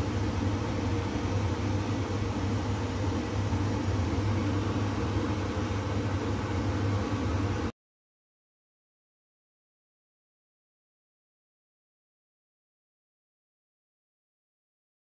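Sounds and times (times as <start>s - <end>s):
kitchen appliance hum and fan: 0.0s - 7.7s.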